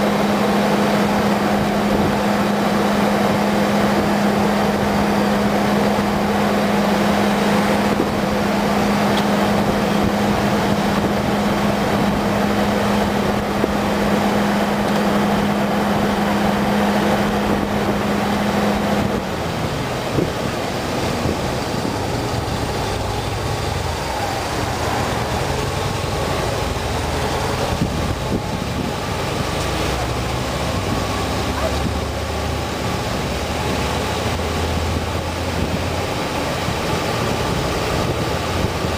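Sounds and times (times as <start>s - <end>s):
car engine: 0.0s - 38.9s
road noise: 0.0s - 38.9s.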